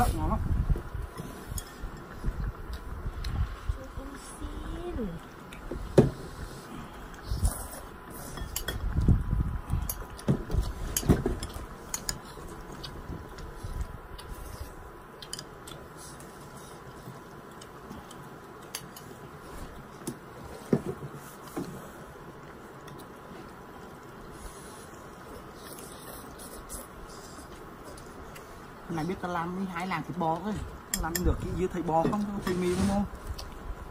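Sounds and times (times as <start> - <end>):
utensils clinking against dish: 8.3 - 8.8.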